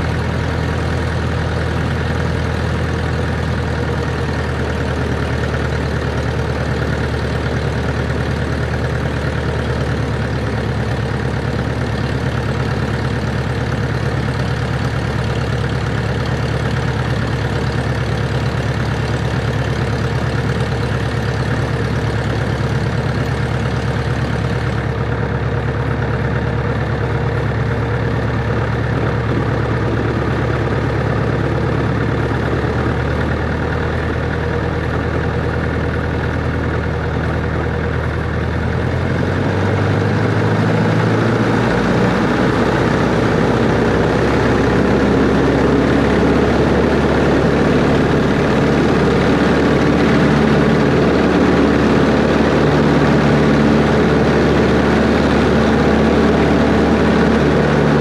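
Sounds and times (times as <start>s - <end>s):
light airplane engine droning: 0.0s - 58.0s.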